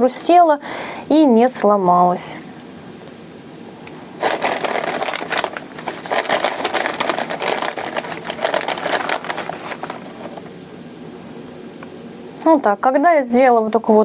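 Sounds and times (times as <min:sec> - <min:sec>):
dry moss crackling: 0:03.9 - 0:10.6
plastic bag rustling: 0:04.1 - 0:10.6.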